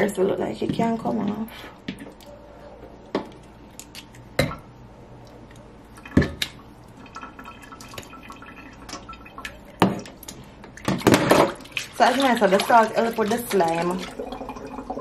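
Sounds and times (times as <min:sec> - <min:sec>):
water dripping and splashing: 0:05.2 - 0:15.0.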